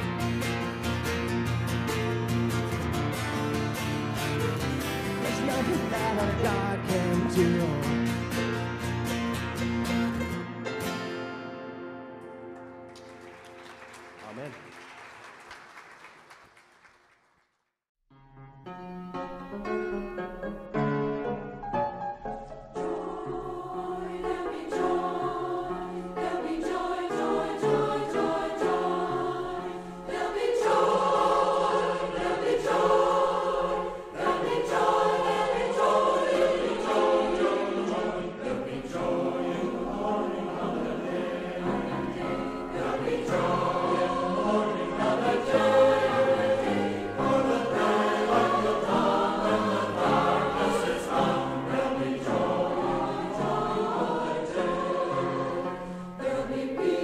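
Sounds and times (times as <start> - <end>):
choir singing worship song: 0.0 - 0.8, 5.0 - 8.6, 22.7 - 57.0
musical accompaniment: 0.0 - 14.8, 18.1 - 57.0.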